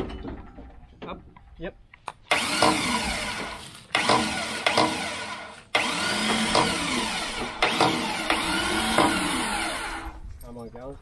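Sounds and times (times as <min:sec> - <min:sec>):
electric hoist motor whining: 0:02.3 - 0:10.2.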